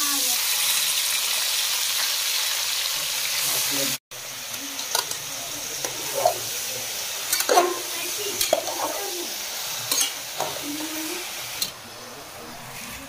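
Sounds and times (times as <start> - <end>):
chicken sizzling: 0.0 - 13.0
metal spatula scraping pot: 5.8 - 6.5, 7.3 - 9.1, 9.8 - 10.7.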